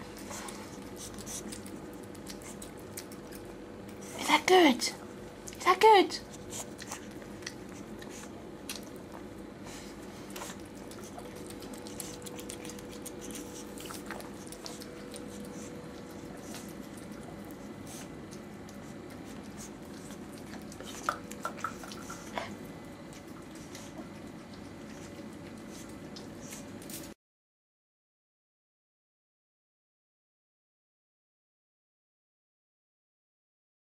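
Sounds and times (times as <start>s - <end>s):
dog licking and chewing: 0.0s - 4.4s, 5.0s - 27.1s.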